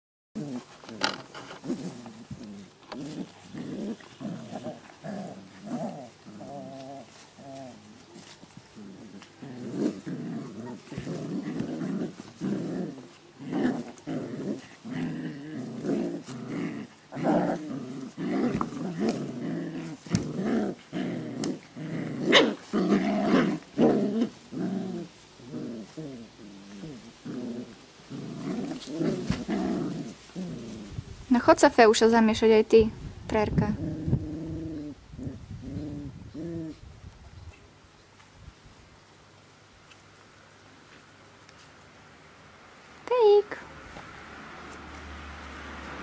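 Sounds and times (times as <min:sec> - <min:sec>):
puppies growling: 0:00.4 - 0:31.0, 0:33.6 - 0:36.9.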